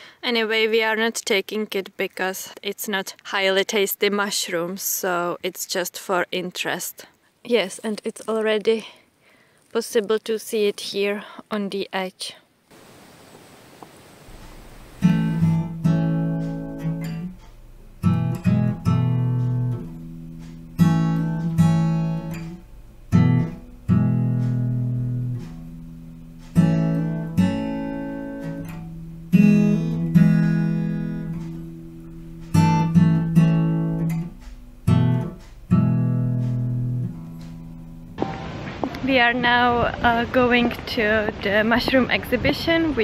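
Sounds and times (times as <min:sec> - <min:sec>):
acoustic guitar strumming chords: 0:14.3 - 0:39.0.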